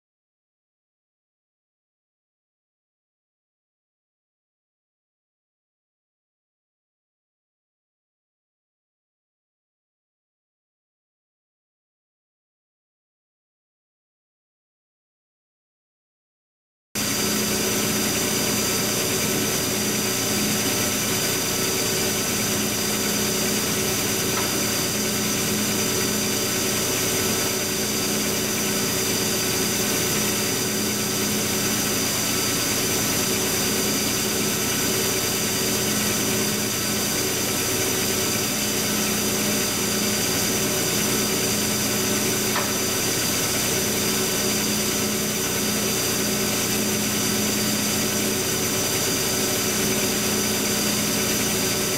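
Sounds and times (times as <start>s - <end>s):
electric machine hum: 17.0s - 51.9s.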